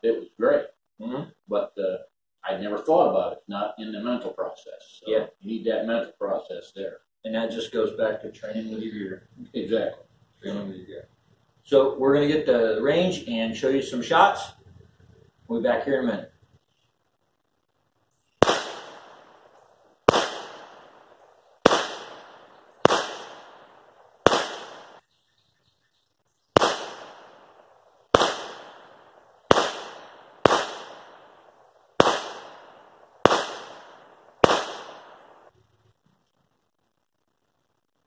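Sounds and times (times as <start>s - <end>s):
pistol shots: 18.4s - 25.0s, 26.6s - 35.5s.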